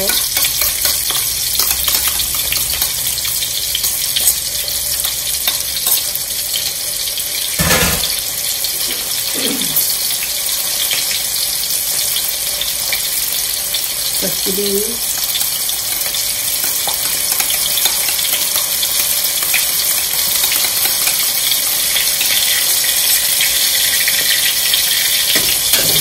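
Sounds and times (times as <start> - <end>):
vegetables sizzling in oil: 0.0 - 26.0
sharp knock: 7.6 - 8.2.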